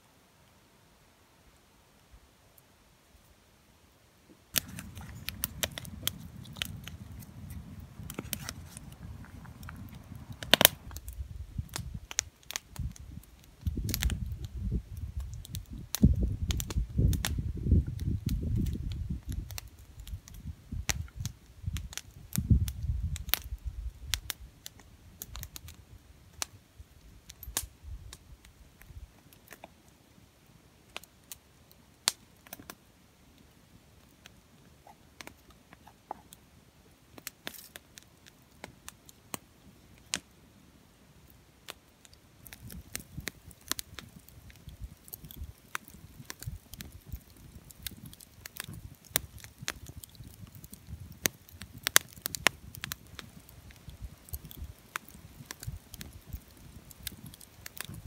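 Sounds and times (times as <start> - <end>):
campfire crackling and popping: 4.4 - 58.0
low rumble: 4.6 - 11.0.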